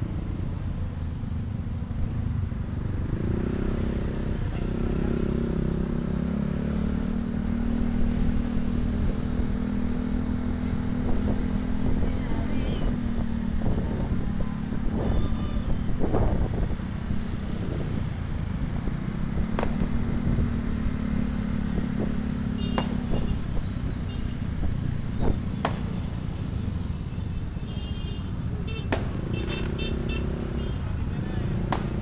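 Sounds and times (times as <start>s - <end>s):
road and wind noise: 0.0s - 32.0s
sharp cracks: 31.7s - 32.0s.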